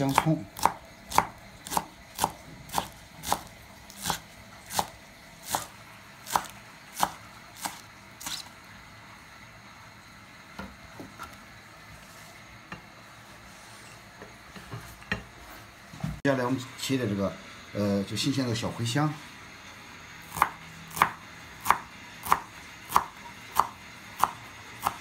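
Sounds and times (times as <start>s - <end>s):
knife chopping on cutting board: 0.0s - 8.5s, 20.3s - 25.0s.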